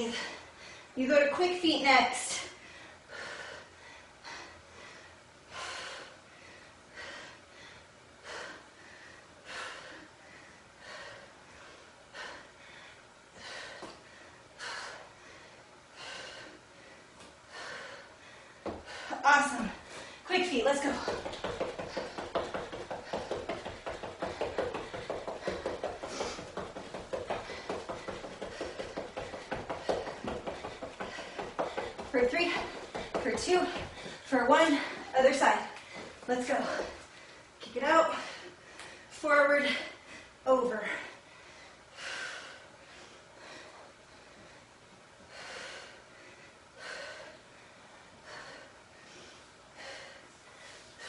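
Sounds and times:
woman breathing hard: 0:00.0 - 0:01.0, 0:02.3 - 0:51.0
fast footsteps on exercise mat: 0:18.6 - 0:38.4.

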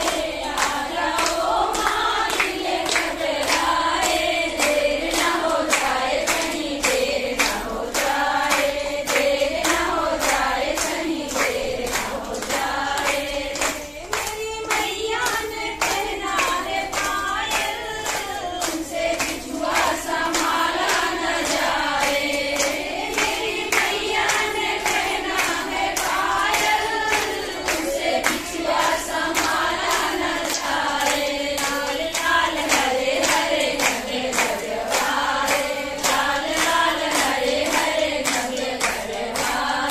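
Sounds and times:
women singing in unison: 0:00.0 - 0:39.9.

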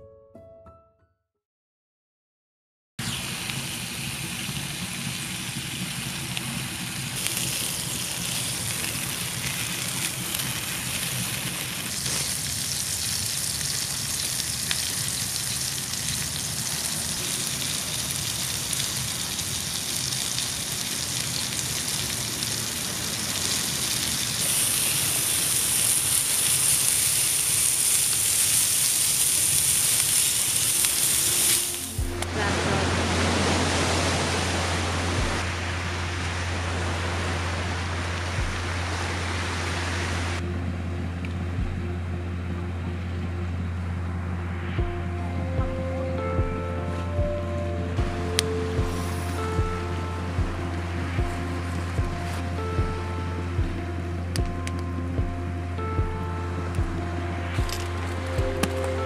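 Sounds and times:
food sizzling: 0:03.0 - 0:36.9, 0:48.0 - 0:53.1, 0:57.4 - 0:59.0.

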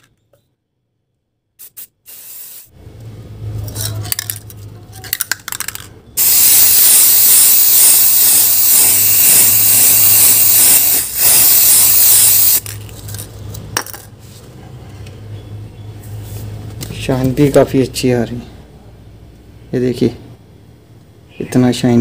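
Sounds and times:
spray paint can hissing: 0:01.6 - 0:02.7, 0:06.2 - 0:12.7.

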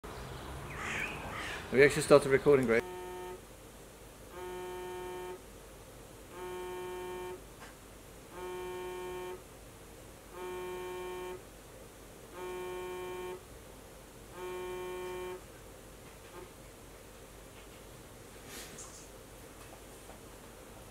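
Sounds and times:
phone vibrating on wooden table: 0:02.8 - 0:03.4, 0:04.3 - 0:05.4, 0:06.3 - 0:07.4, 0:08.3 - 0:09.5, 0:10.3 - 0:11.4, 0:12.3 - 0:13.5, 0:14.3 - 0:15.5, 0:16.2 - 0:16.5.

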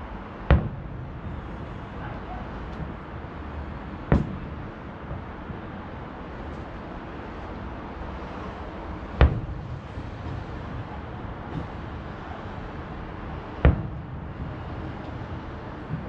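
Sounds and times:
distant firework shells bursting: 0:00.3 - 0:07.0, 0:09.0 - 0:12.0, 0:13.3 - 0:16.0.

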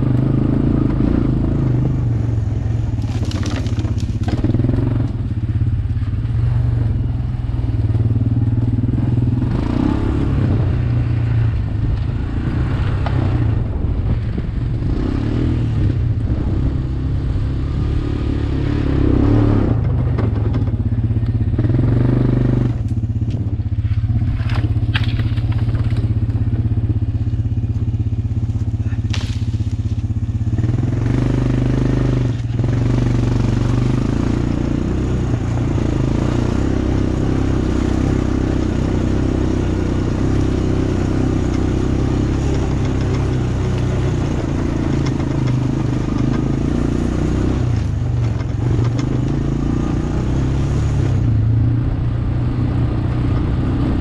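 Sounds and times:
atv engine running: 0:00.0 - 0:54.0
dry leaves and twigs cracking: 0:02.8 - 0:05.2, 0:22.8 - 0:26.2, 0:27.2 - 0:30.4.

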